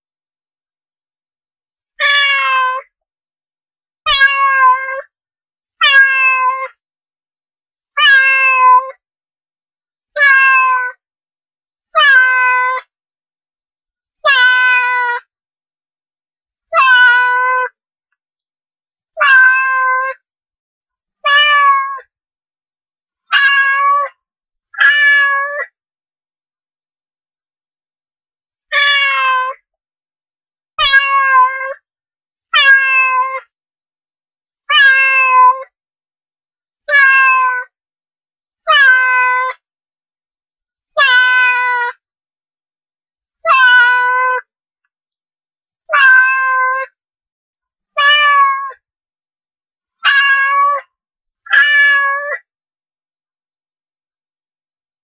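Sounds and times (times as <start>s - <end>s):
cat meowing: 2.0s - 2.9s, 4.1s - 5.1s, 5.8s - 6.7s, 8.0s - 9.0s, 10.2s - 11.0s, 12.0s - 12.9s, 14.2s - 15.2s, 16.7s - 17.8s, 19.2s - 20.2s, 21.2s - 22.0s, 23.3s - 24.2s, 24.8s - 25.7s, 28.7s - 29.6s, 30.8s - 31.8s, 32.6s - 33.5s, 34.7s - 35.7s, 36.9s - 37.7s, 38.7s - 39.6s, 41.0s - 42.0s, 43.4s - 44.5s, 45.9s - 47.0s, 48.0s - 48.8s, 50.0s - 50.9s, 51.5s - 52.5s.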